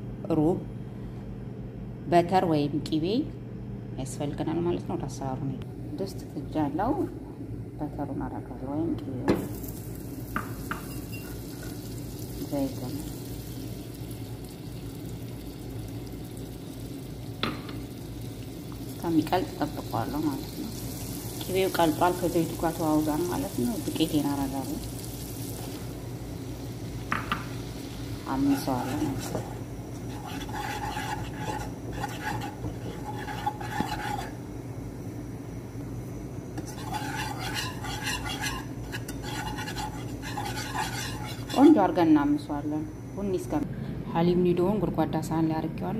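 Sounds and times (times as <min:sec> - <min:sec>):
butter sizzling in oil: 0:09.4 - 0:34.6, 0:36.6 - 0:41.9
metal whisk scraping a pan: 0:28.3 - 0:34.4, 0:36.6 - 0:41.8.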